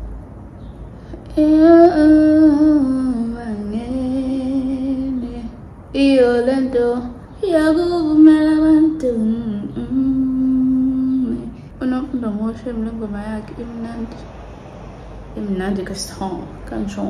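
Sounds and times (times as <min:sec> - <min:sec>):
woman singing unaccompanied: 0:01.1 - 0:14.2.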